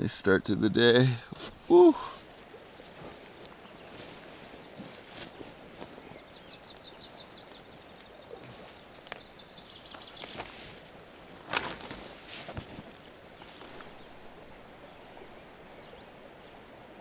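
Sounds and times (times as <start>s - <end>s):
steady outdoor hiss: 0.0s - 17.0s
tent fabric rustling: 1.3s - 2.0s, 2.8s - 6.6s, 9.8s - 14.2s.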